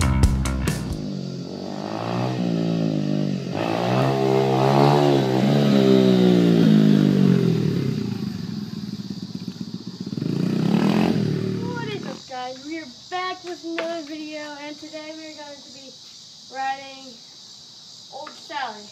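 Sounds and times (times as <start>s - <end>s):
dirt bike engine revving: 0.6s - 12.4s.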